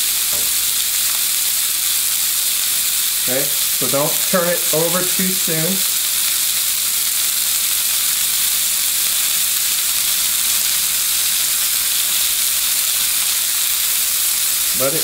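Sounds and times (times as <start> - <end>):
chicken sizzling in a frying pan: 0.0 - 15.0.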